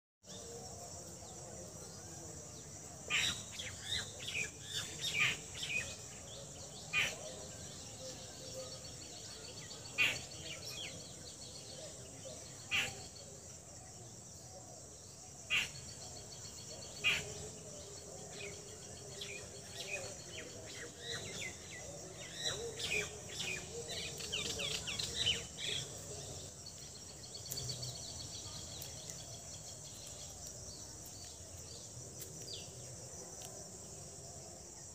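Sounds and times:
birds chirping: 0:15.0 - 0:33.0.

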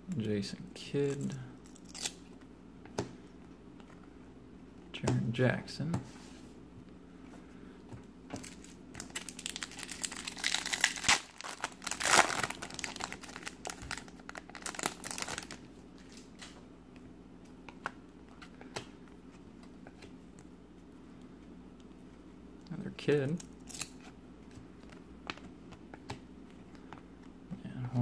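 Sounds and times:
foil wrapper crinkling and tearing: 0:08.4 - 0:16.4.

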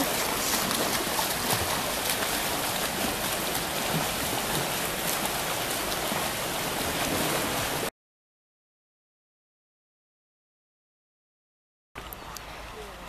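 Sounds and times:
swimmers splashing in water: 0:00.0 - 0:07.9.

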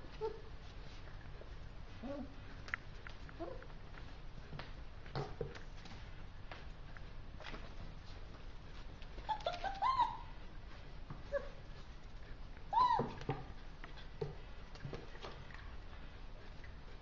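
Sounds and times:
puppies yelping: 0:09.3 - 0:10.3.

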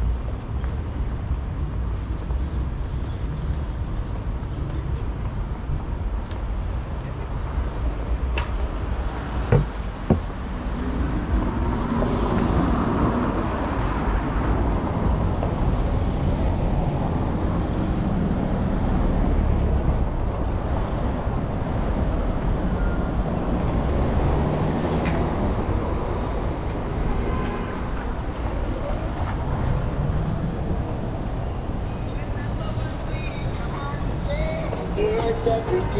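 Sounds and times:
low rumble of traffic: 0:00.0 - 0:35.9
sharp knocks: 0:09.5 - 0:10.3.

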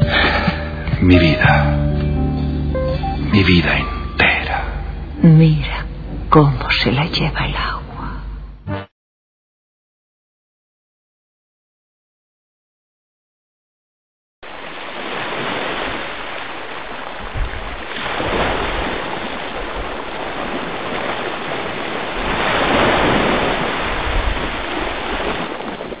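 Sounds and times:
sea waves washing in: 0:14.4 - 0:26.0.

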